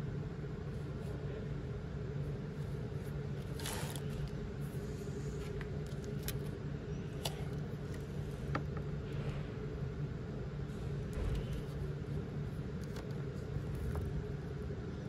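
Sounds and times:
store room tone hum: 0:00.0 - 0:15.0
scraping rustle: 0:02.6 - 0:05.6.

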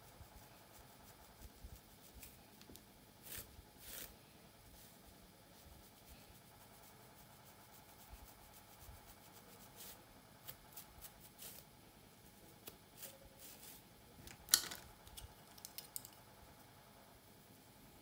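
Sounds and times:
comb scratching through hair: 0:00.1 - 0:02.6, 0:03.2 - 0:13.9.

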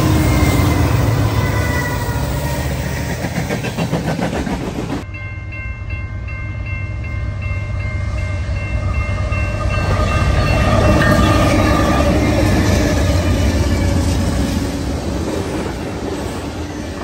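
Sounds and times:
freight train rumble and wheel clatter: 0:00.0 - 0:17.0.

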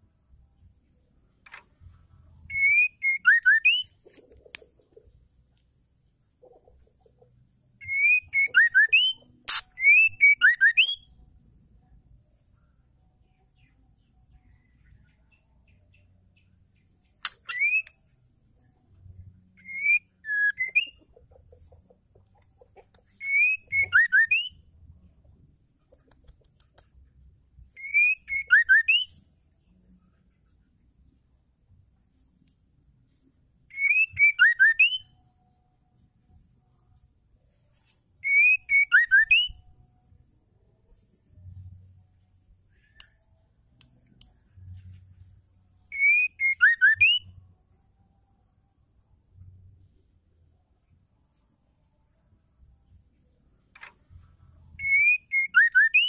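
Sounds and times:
bird whistling: 0:02.5 - 0:03.9, 0:07.8 - 0:11.1, 0:17.3 - 0:17.9, 0:19.6 - 0:21.0, 0:23.2 - 0:24.6, 0:27.8 - 0:29.2, 0:33.7 - 0:35.1, 0:38.2 - 0:39.6, 0:45.9 - 0:47.3, 0:54.8 - 0:56.0.

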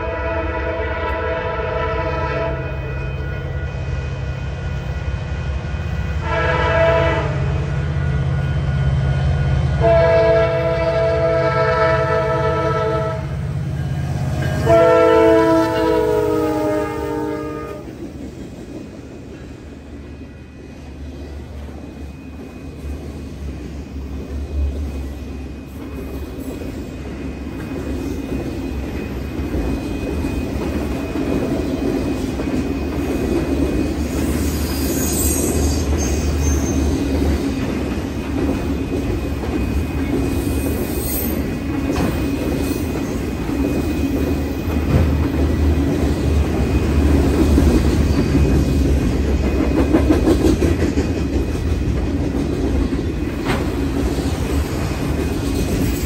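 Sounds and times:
locomotive horn blasts: 0:00.0 - 0:03.7, 0:06.2 - 0:07.7, 0:09.8 - 0:13.4, 0:14.4 - 0:18.0
freight cars rumbling and clattering: 0:41.4 - 0:56.0.

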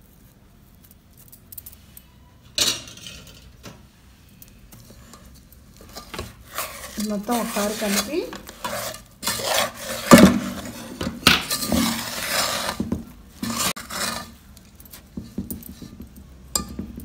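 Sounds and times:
spoon scraping in metal pot: 0:04.6 - 0:16.9
spoon knocking against pot: 0:15.1 - 0:17.0.

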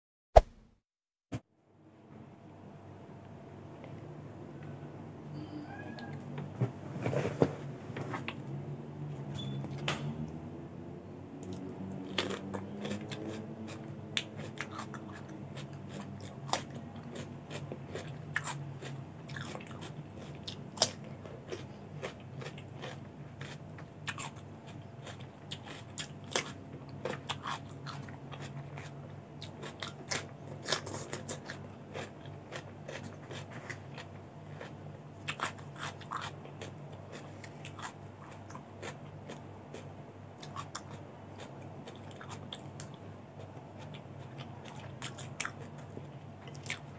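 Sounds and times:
chewing raw vegetables: 0:11.4 - 0:46.9.

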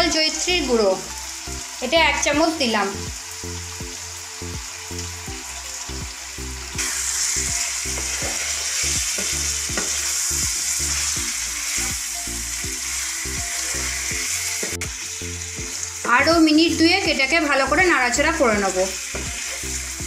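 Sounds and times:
chicken sizzling in oil: 0:00.0 - 0:20.0
soft background music: 0:00.0 - 0:20.0
spatula stirring in pan: 0:06.8 - 0:12.0.

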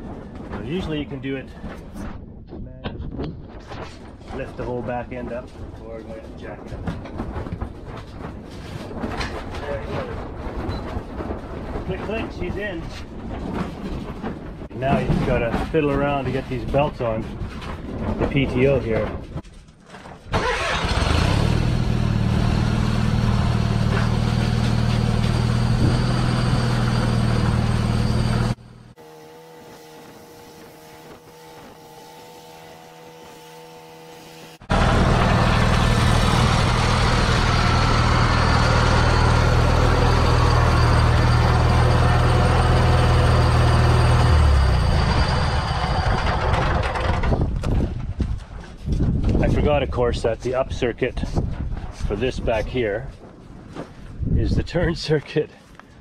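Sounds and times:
garden tractor engine running: 0:20.3 - 0:47.7.

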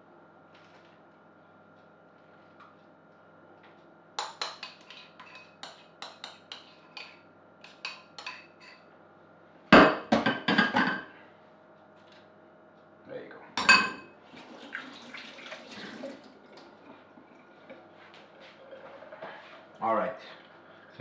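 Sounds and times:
spoon scraping a bowl: 0:04.2 - 0:08.8.

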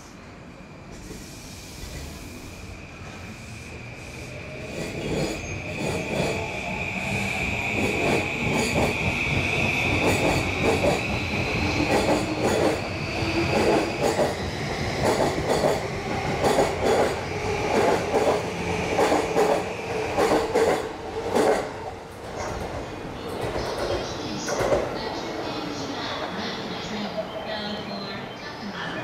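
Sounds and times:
electric train whine: 0:00.0 - 0:20.6.

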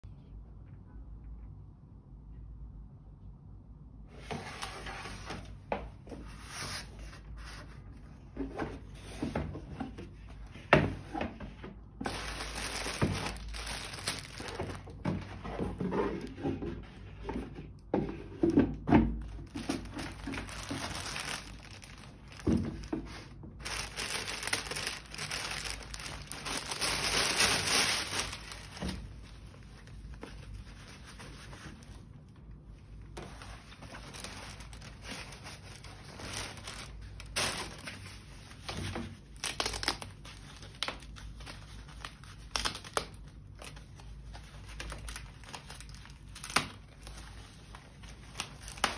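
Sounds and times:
plastic wrapping crinkling: 0:12.0 - 0:16.3, 0:19.2 - 0:48.9.

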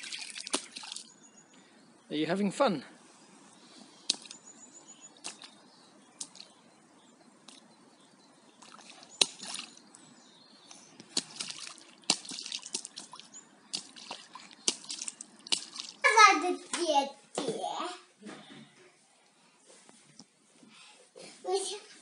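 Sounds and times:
child splashing in water: 0:00.0 - 0:01.1, 0:05.2 - 0:05.6, 0:08.6 - 0:09.8, 0:11.1 - 0:16.2.

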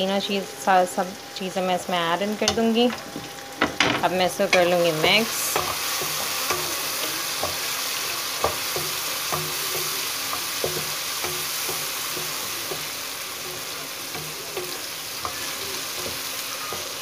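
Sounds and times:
food sizzling in hot oil: 0:00.0 - 0:17.0
wooden spatula scraping a wok: 0:04.5 - 0:17.0.

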